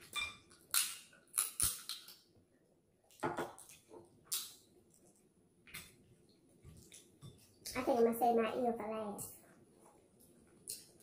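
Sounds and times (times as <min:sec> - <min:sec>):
chewing and mouth noises: 0:06.7 - 0:07.7.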